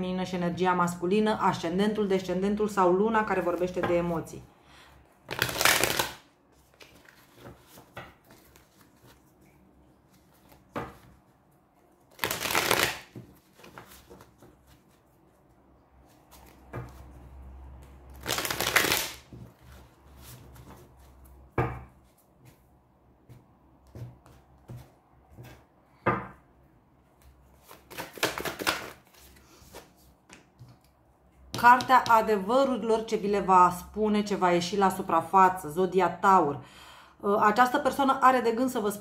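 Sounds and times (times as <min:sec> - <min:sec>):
cards being riffle-shuffled: 0:05.3 - 0:11.2, 0:12.0 - 0:15.3, 0:18.1 - 0:21.1, 0:27.5 - 0:30.9
cards tapping and clicking: 0:27.7 - 0:29.0.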